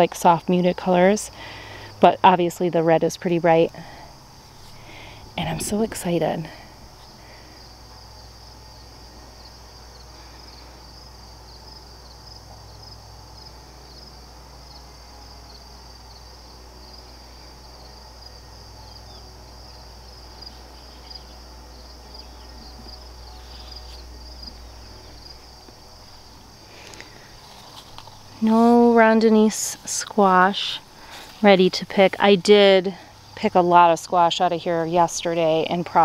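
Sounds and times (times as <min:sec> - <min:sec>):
crickets trilling: 0:00.0 - 0:36.0
low steady hum: 0:00.0 - 0:36.0.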